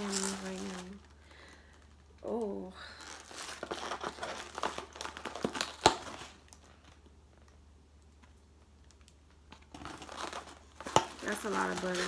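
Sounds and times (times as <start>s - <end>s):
foam container rustling: 0.0s - 1.0s, 9.8s - 12.0s
plastic bag crinkling: 0.0s - 7.5s, 8.9s - 12.0s.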